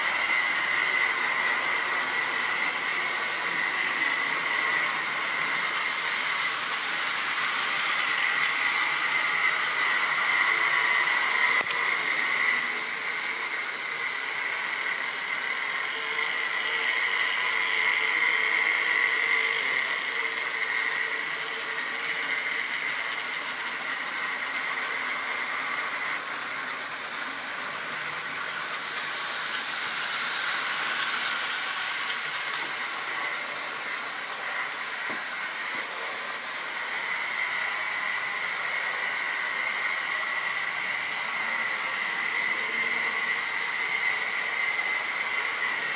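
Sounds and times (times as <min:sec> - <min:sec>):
model train motor whining: 0:00.0 - 0:45.9
wheels rolling on track: 0:26.2 - 0:33.2.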